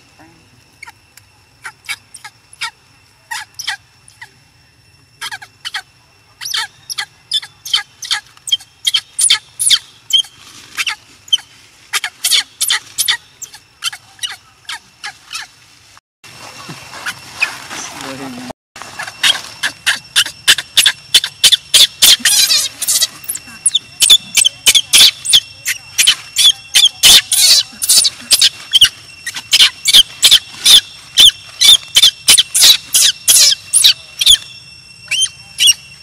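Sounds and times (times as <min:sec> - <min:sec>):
baby monkey crying: 0:01.6 - 0:03.8, 0:05.2 - 0:15.5, 0:19.0 - 0:34.4, 0:35.1 - 0:35.8.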